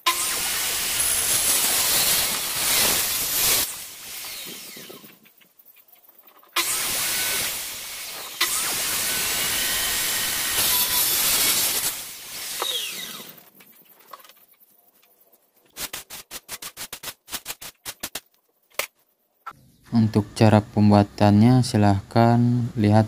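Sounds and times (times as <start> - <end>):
circular saw cutting wood: 0.0 - 5.2, 6.6 - 13.5
hand brush sweeping sawdust: 0.1 - 5.1.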